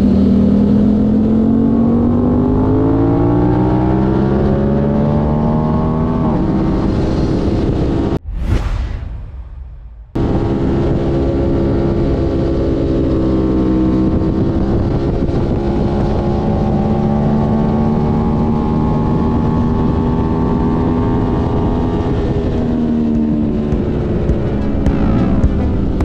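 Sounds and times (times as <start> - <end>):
motorcycle engine running: 22.1 - 26.0.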